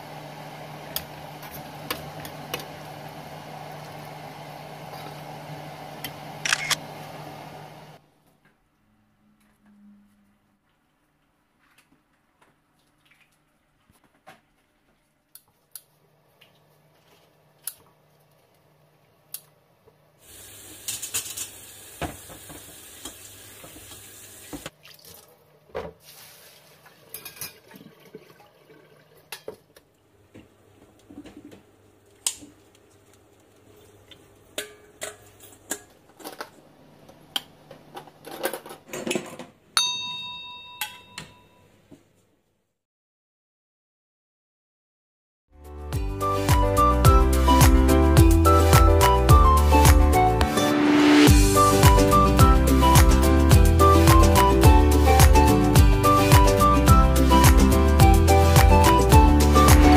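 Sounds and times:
tap water running into sink: 20.4s - 25.3s
metal bowls and utensils clinking: 27.1s - 27.6s, 34.5s - 36.5s
short ringing tone: 39.8s - 41.8s.

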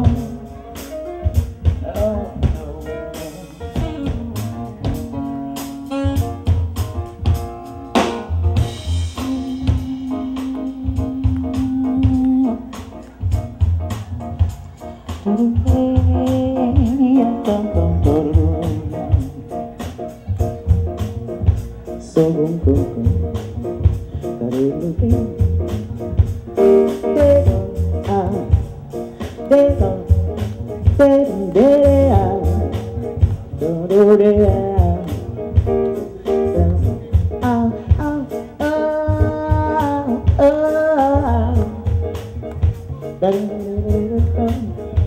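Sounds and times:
jazz-funk band playing: 0.0s - 45.0s
woman singing: 9.2s - 12.7s, 36.5s - 41.8s.

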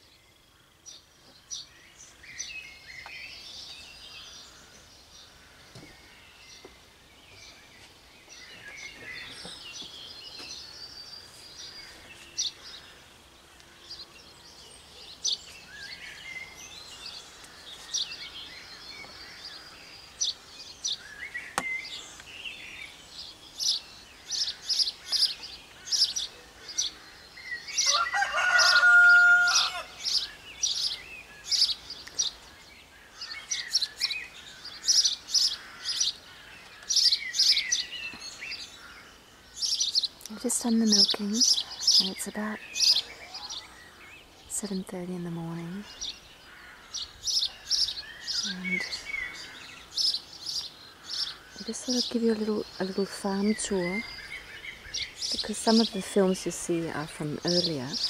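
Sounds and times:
small birds chirping: 0.0s - 58.0s
rooster crowing: 27.8s - 30.2s.

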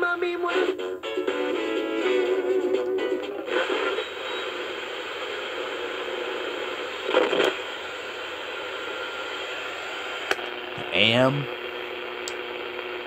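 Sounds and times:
radio static hissing: 3.4s - 13.0s.

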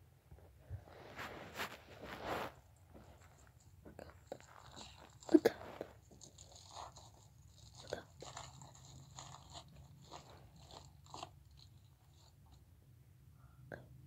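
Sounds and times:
small clicks and crunches: 1.7s - 12.6s.

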